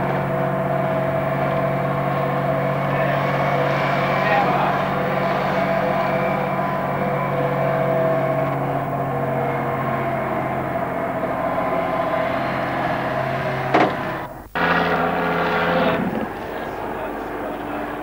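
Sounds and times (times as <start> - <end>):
engine droning: 0.0 - 18.0.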